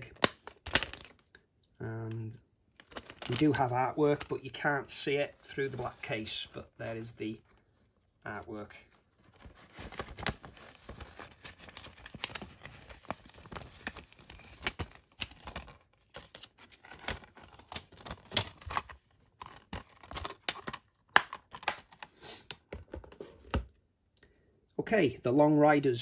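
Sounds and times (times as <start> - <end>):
paper rustling against plastic case: 2.8 - 6.4, 8.8 - 20.9.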